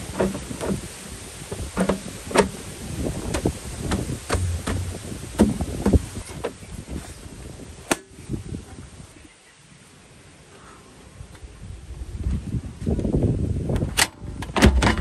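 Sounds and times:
steady background hiss: 0:00.0 - 0:11.9
sharp chopping knocks: 0:03.9 - 0:06.1.

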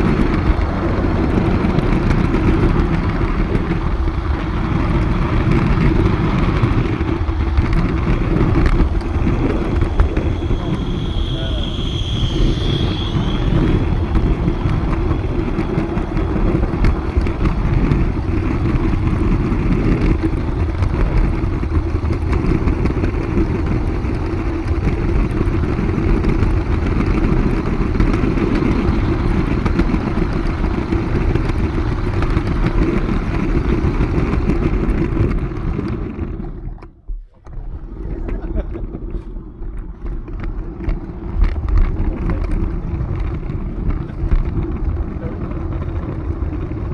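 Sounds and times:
model train wheels rumbling: 0:00.0 - 0:46.9
high squeal: 0:09.1 - 0:15.5.

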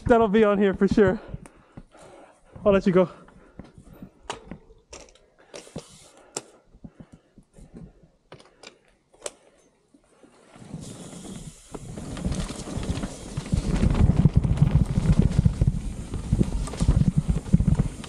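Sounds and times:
tyres rolling over dirt: 0:10.6 - 0:18.0.

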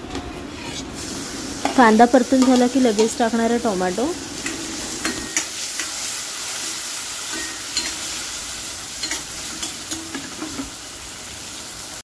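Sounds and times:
metal spoon scraping a pan: 0:00.1 - 0:01.0, 0:04.4 - 0:10.8
vegetables sizzling in oil: 0:00.7 - 0:12.0.

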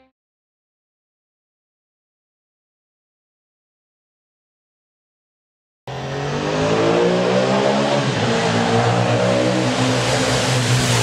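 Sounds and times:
engine revving: 0:05.9 - 0:11.0.

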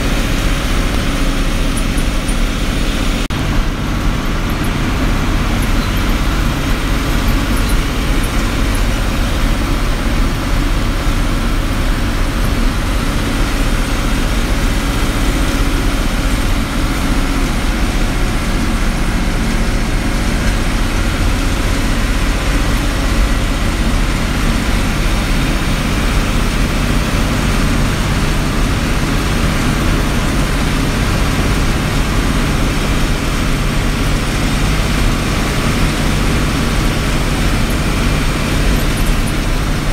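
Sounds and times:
bus engine running: 0:00.0 - 0:39.9
tyre and road noise: 0:00.0 - 0:39.9.

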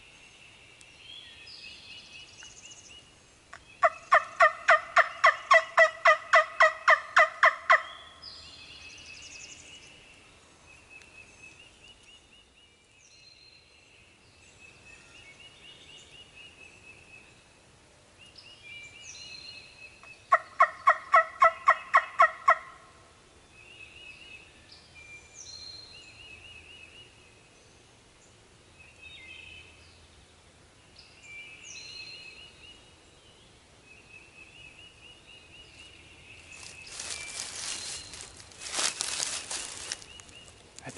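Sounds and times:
songbirds singing faintly: 0:00.0 - 0:40.9
turkey call yelping: 0:03.8 - 0:08.0, 0:20.3 - 0:22.8.

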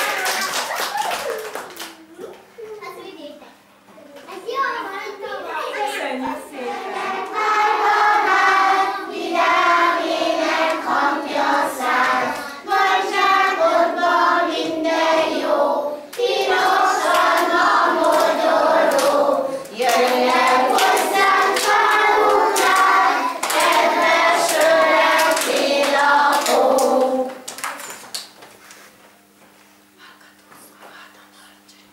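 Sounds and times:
young children singing: 0:06.3 - 0:27.4.

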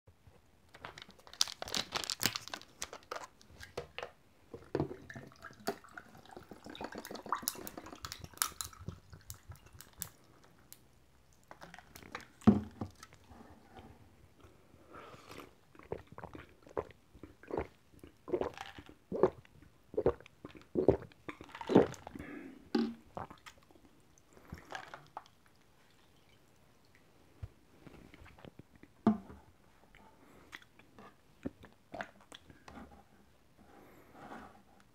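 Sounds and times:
plastic bottle cracking open: 0:00.7 - 0:04.1
tea pouring over ice: 0:05.3 - 0:10.2
loud gulps: 0:15.8 - 0:23.5.

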